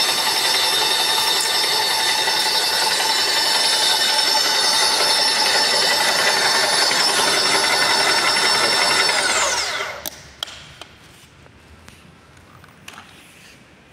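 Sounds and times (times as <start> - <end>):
paint sprayer motor whining: 0.0 - 10.1.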